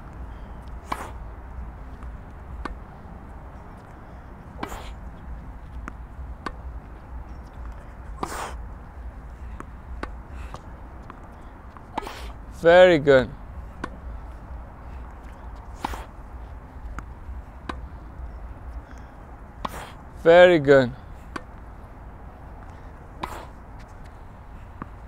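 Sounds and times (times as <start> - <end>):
tennis ball struck by racquets: 0.6 - 1.3, 2.0 - 2.9, 4.4 - 5.0, 5.8 - 6.7, 8.1 - 8.6, 9.5 - 12.4, 13.8 - 14.0, 15.6 - 16.2, 16.9 - 17.9, 22.6 - 23.6
tennis ball bouncing on court: 0.6 - 12.4, 13.7 - 14.3, 15.2 - 18.0, 21.3 - 21.7, 22.6 - 23.9.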